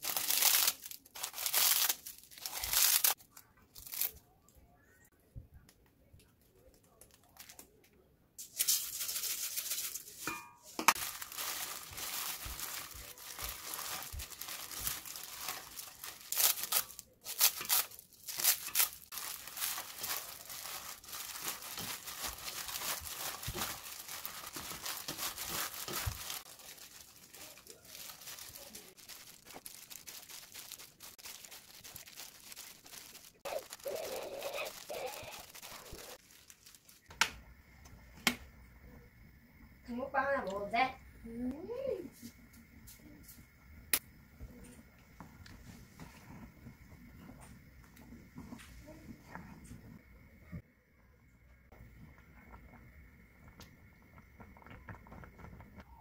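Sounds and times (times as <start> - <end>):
plastic glove crinkling: 0.0 - 4.3, 6.9 - 7.8, 8.4 - 37.2.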